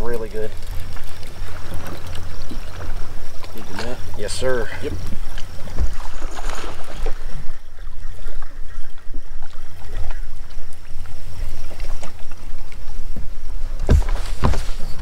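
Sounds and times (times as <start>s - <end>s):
boat engine rumble: 0.0s - 15.0s
dull knocks: 13.8s - 15.0s.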